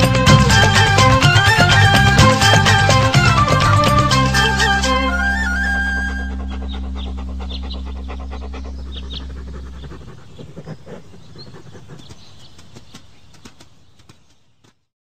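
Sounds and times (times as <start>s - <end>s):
low drone: 0.0s - 12.6s
quick ticks: 6.5s - 14.8s.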